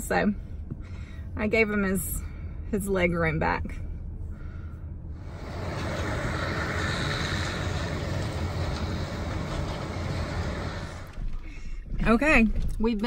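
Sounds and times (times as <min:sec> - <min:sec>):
combine harvester rumbling: 0:05.1 - 0:12.4.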